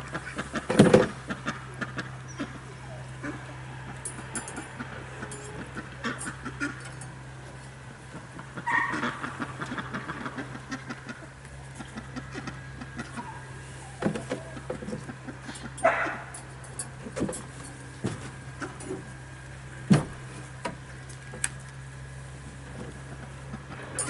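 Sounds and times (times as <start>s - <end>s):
steady low hum: 0.0s - 24.0s
knocks and clunks on wood: 19.9s - 20.8s.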